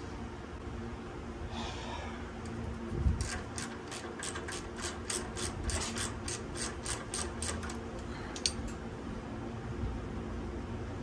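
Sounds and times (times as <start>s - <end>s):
ratchet wrench clicking: 3.2s - 8.8s.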